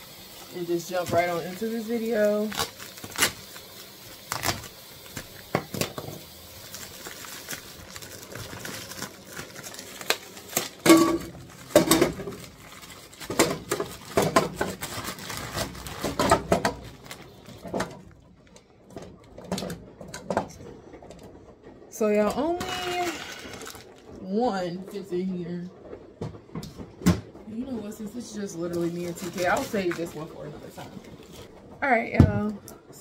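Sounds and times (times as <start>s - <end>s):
plastic wrapping rustling: 0.2s - 21.5s, 22.4s - 24.2s, 26.4s - 31.8s
cooking pot clattering: 10.8s - 12.5s.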